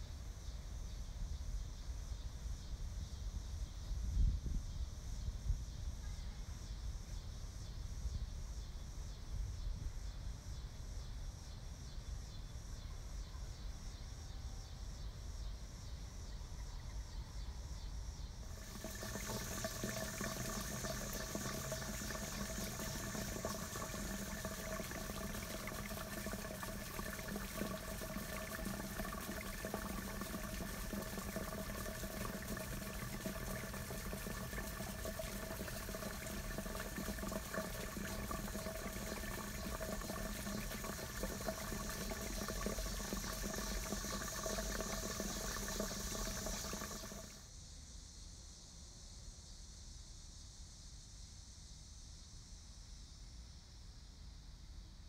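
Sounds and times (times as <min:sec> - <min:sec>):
water splashing in fountain basin: 0:18.5 - 0:47.4.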